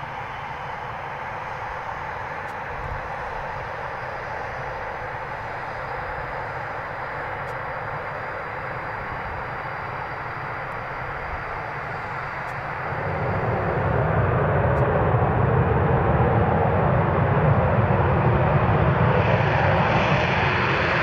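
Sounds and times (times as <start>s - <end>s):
high turbine whine: 0.0s - 21.0s
jet engines running: 0.0s - 21.0s.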